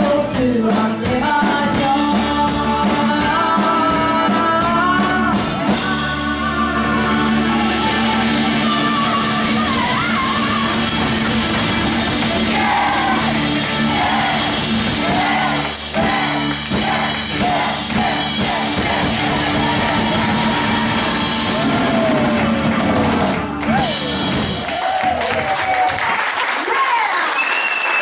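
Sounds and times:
woman singing: 0.0 - 10.8
live rock band playing: 0.0 - 25.1.

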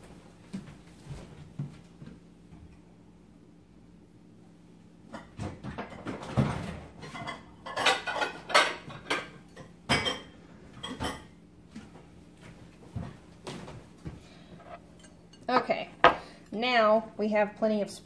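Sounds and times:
dishes clattering and clinking: 5.1 - 11.4, 14.6 - 16.3.

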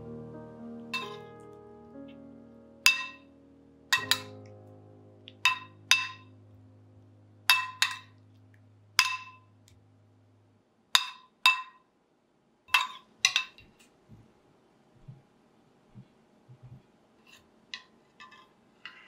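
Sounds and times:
metal spoon clinking ceramic bowl: 1.0 - 1.2, 2.9 - 3.2, 4.0 - 4.4, 5.4 - 6.2, 7.5 - 8.1, 9.0 - 9.4, 12.7 - 13.6.

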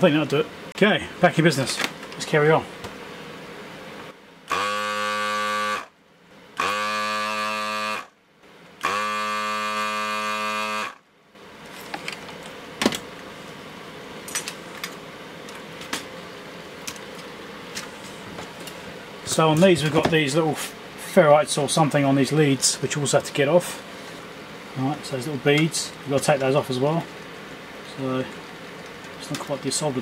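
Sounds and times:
fume extractor fan hum: 0.0 - 30.0
desoldering pump buzzing: 4.4 - 11.5.

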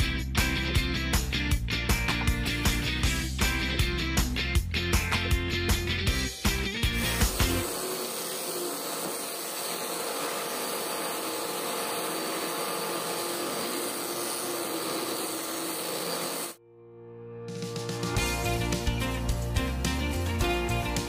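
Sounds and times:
angle grinder sanding wood: 6.9 - 16.6.

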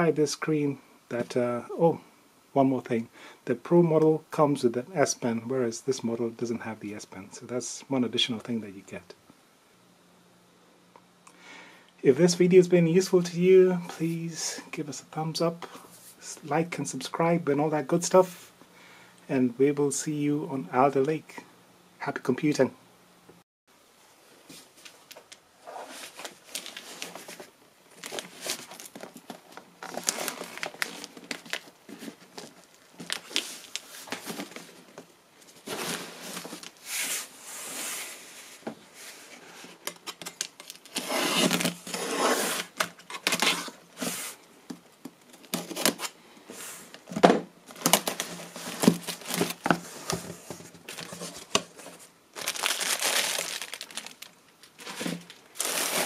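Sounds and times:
plastic wrapping crinkling: 24.6 - 36.8, 39.7 - 43.7, 45.2 - 46.2, 46.9 - 56.0
cardboard rustling and tearing: 25.7 - 34.9, 35.5 - 37.3, 40.0 - 44.4, 45.3 - 46.2, 47.0 - 56.0.

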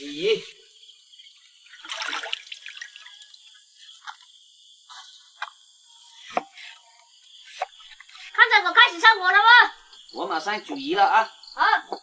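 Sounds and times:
water dripping: 1.6 - 4.2
water sloshing and splashing: 1.6 - 4.2.

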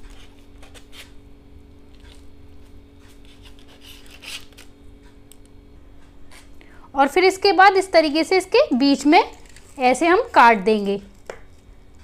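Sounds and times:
knife scraping through noodles: 3.0 - 4.7.

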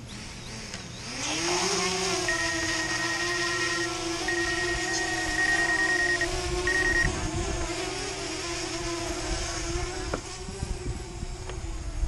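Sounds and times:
drone propellers humming: 0.0 - 12.0
high electronic beep: 2.3 - 3.0, 3.6 - 7.1
wind rumbling on microphone: 6.1 - 12.0.

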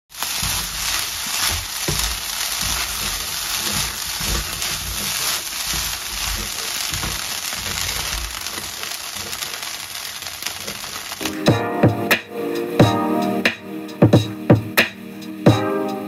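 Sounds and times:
fried rice sizzling in wok: 0.1 - 11.3
spatula knocking and scraping pan: 0.2 - 8.7.

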